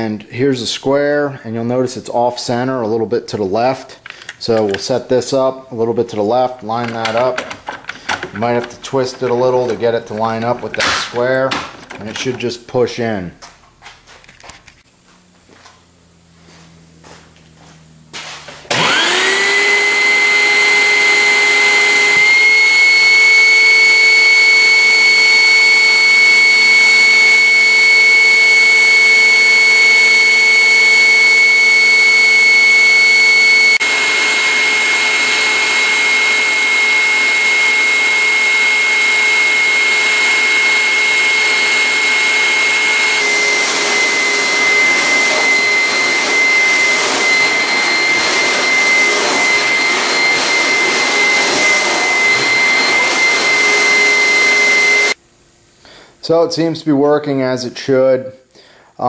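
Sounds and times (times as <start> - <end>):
carpet cleaner motor whine: 15.1 - 55.2.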